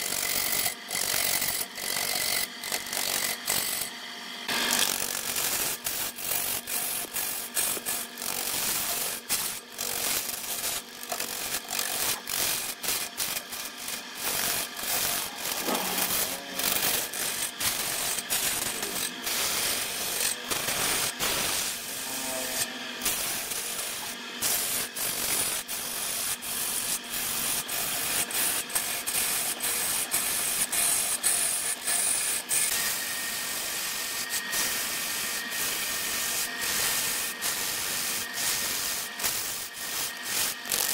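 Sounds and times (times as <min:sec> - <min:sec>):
lathe tool scraping wood: 0:00.0 - 0:40.9
clicks and knocks of shavings: 0:04.7 - 0:21.5, 0:38.2 - 0:40.9.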